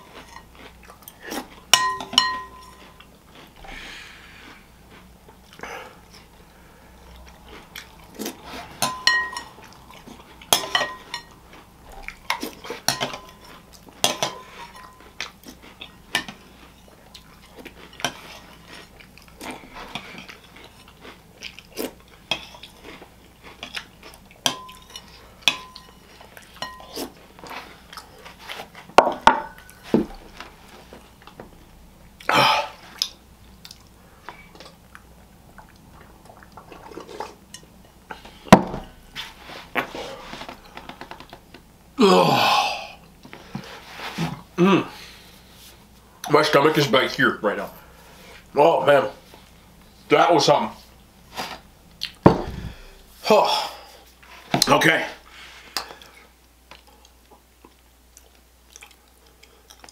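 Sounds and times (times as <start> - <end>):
person chewing: 0.0 - 41.6, 51.9 - 53.1, 55.6 - 59.9
spoon clinking against bowl: 1.7 - 2.9, 8.8 - 9.6, 10.5 - 11.3.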